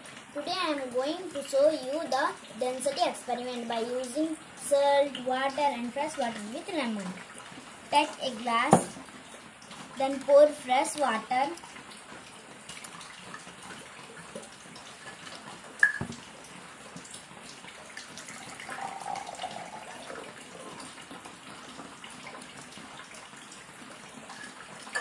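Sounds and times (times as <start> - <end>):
water trickling into a glass: 12.7 - 16.3, 17.9 - 21.2, 23.0 - 25.0.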